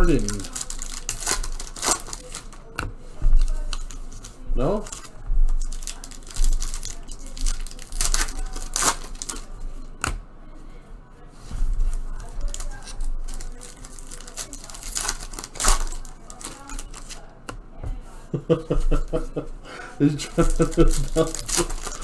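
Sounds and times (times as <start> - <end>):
wrapper ripping: 0.0 - 2.7, 3.4 - 9.5, 12.1 - 17.3, 20.2 - 22.0
foil packs crinkling: 0.0 - 2.8, 3.4 - 9.5, 11.7 - 17.4, 20.0 - 22.0.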